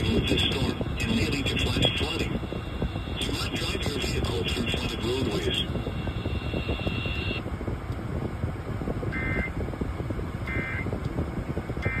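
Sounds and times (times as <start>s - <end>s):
electronic data bursts: 0.0s - 7.4s
air conditioning blowing: 0.0s - 12.0s.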